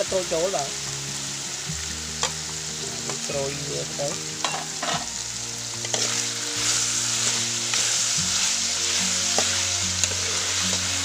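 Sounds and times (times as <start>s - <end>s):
meat sizzling in hot oil: 0.0s - 11.0s
spatula scraping wok: 4.4s - 5.2s, 5.8s - 11.0s.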